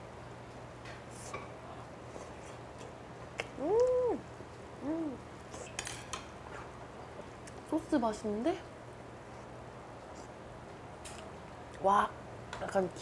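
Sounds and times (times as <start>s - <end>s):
wet mouth clicks: 3.4s - 4.0s
woman humming mmm: 3.4s - 5.7s.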